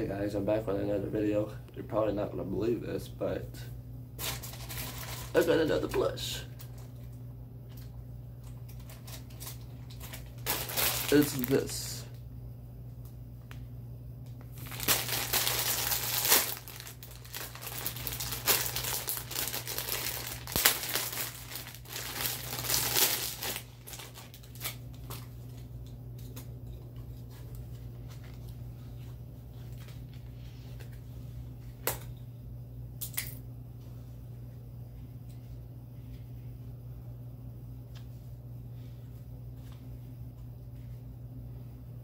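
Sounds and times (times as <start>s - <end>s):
plastic bag crinkling: 4.2s - 7.1s, 8.5s - 12.0s, 14.5s - 25.7s.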